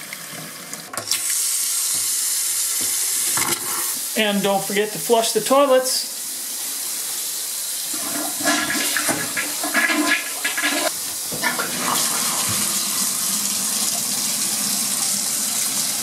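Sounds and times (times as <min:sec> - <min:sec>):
toilet flushing: 0:00.0 - 0:16.0
bathtub spout running: 0:07.8 - 0:16.0.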